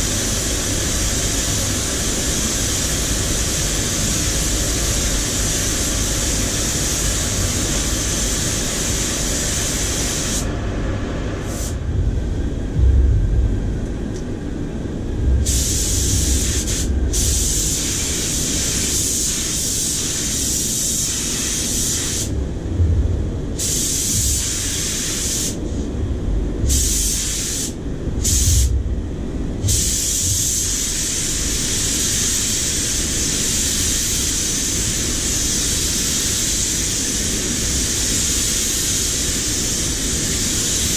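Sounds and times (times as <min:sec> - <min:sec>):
paint spray gun hissing: 0:00.0 - 0:10.4, 0:15.4 - 0:22.4, 0:23.6 - 0:25.6, 0:26.7 - 0:28.7, 0:29.7 - 0:40.9
low rumble: 0:10.4 - 0:18.7, 0:22.3 - 0:24.6, 0:25.6 - 0:26.8, 0:27.9 - 0:29.9.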